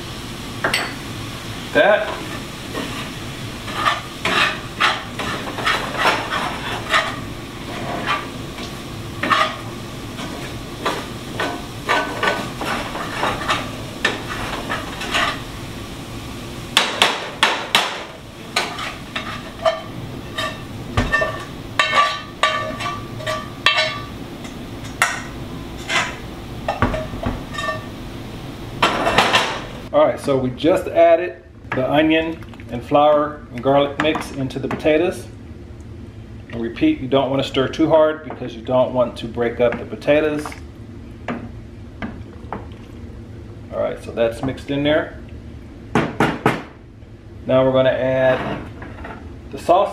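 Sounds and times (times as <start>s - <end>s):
food sizzling: 0.0s - 29.9s
utensil scraping a frying pan: 1.9s - 15.7s, 16.8s - 28.0s.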